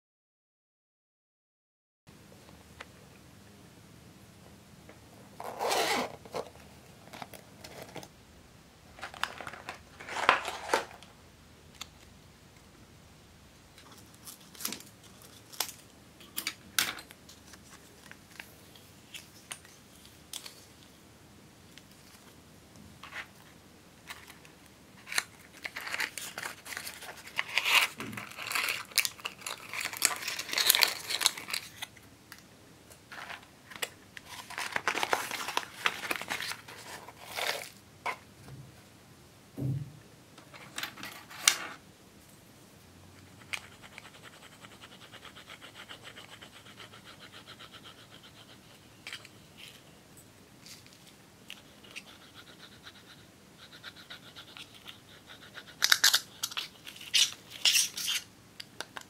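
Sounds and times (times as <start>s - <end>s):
cardboard packaging crinkling: 9.0s - 11.0s, 25.0s - 32.0s, 33.1s - 37.8s.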